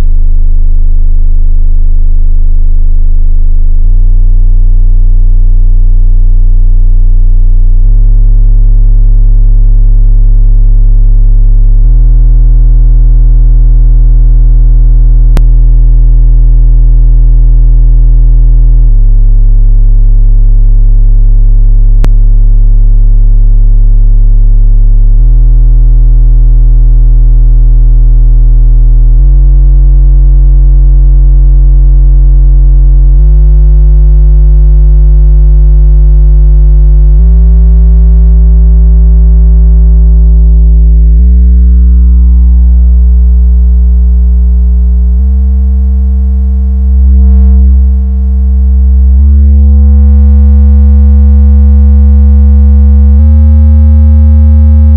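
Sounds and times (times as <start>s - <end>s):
electronic drone: 37.2s - 45.6s, 46.7s - 53.5s.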